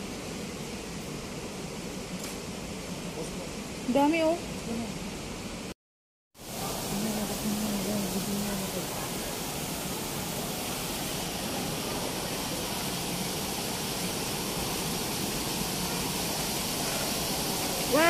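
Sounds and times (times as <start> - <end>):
steady rushing noise: 6.4 - 18.0.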